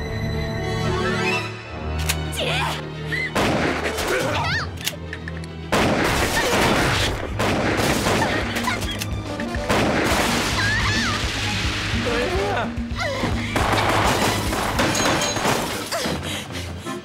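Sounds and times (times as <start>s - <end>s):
tense background music: 0.0s - 17.0s
gunfire: 3.4s - 4.2s, 5.7s - 8.6s, 9.7s - 10.6s, 13.6s - 15.8s.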